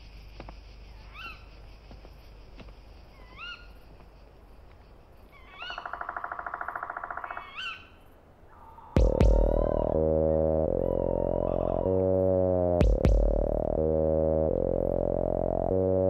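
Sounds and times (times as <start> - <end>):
short rising bird call: 8.5 - 12.3
fast pulsing bird trill: 9.0 - 13.8
music: 9.0 - 16.0.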